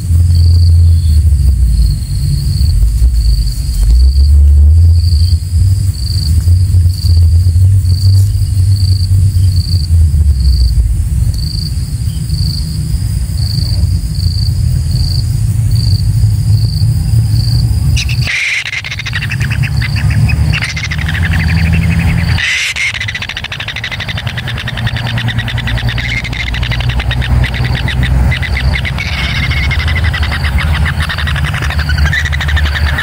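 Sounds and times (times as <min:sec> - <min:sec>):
loud low rumble: 0:00.0 - 0:33.0
chicks making rasping pulsed calls: 0:16.6 - 0:33.0.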